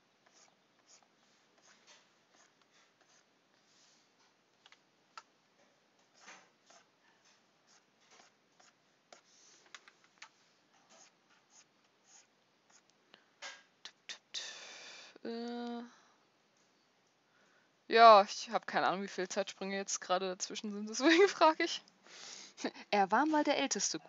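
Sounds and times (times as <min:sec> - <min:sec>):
stylus scratching on tablet: 0:00.2 - 0:03.9, 0:06.0 - 0:06.9, 0:07.6 - 0:09.6, 0:10.8 - 0:12.9.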